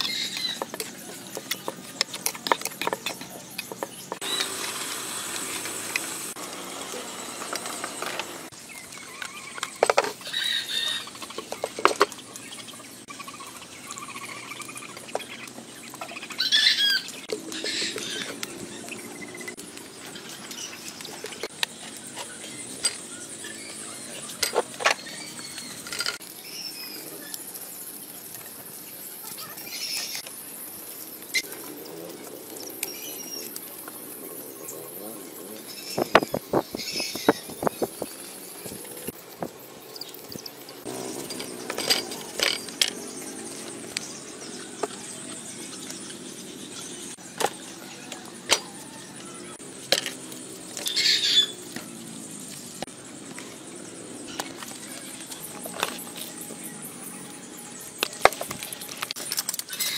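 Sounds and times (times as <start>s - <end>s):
sharp clicks and cracks: 0.0s - 4.6s, 58.0s - 59.9s.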